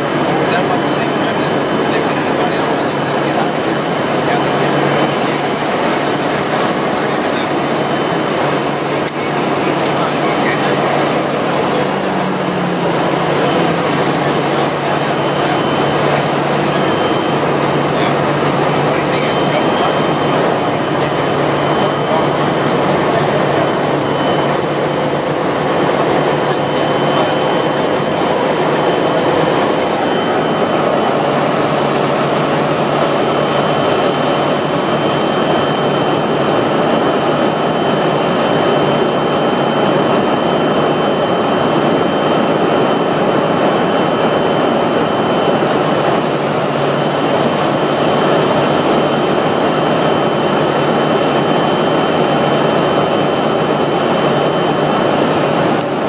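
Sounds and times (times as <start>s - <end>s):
high turbine whine: 0.0s - 56.0s
turboprop engine drone: 0.0s - 56.0s.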